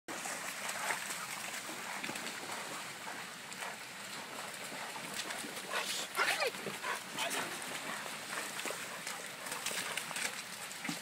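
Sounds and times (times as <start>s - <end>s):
dogs splashing through water: 0.1s - 11.0s
stream running over a ford: 0.1s - 11.0s.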